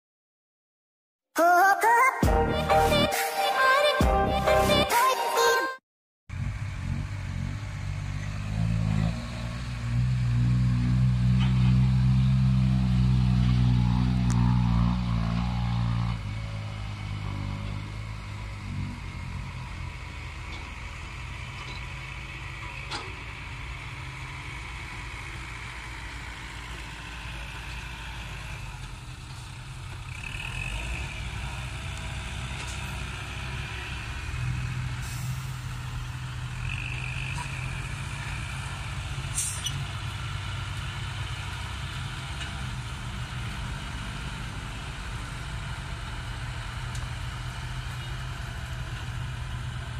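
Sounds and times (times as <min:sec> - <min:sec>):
dump truck diesel engines: 0:06.3 - 0:49.9
air brake hisses: 0:35.0 - 0:36.1, 0:39.3 - 0:39.8.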